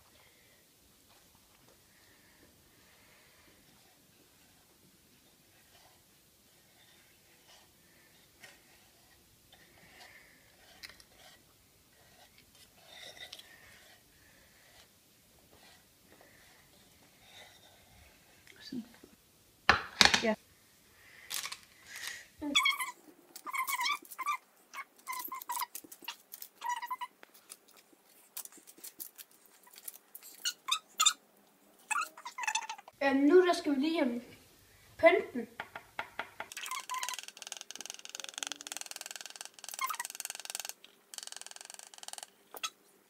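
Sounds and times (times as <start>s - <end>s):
small animal squeaky calls: 22.4s - 27.1s, 30.2s - 31.2s, 31.9s - 32.9s, 36.5s - 42.8s.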